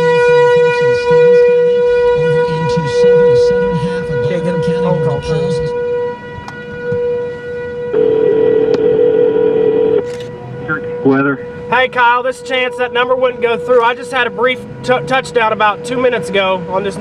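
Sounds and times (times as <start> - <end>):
lower tone: 0.0 - 11.7
steady siren-like tone: 0.0 - 17.0.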